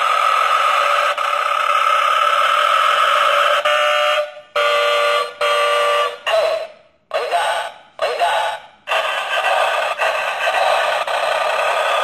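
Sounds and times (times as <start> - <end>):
recorded air horn from small speaker: 3.2 - 6.8.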